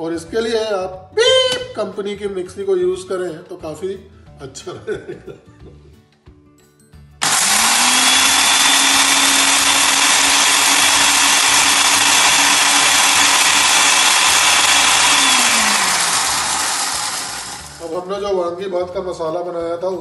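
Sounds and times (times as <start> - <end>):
mixer grinder motor whirring: 7.2 - 18.0.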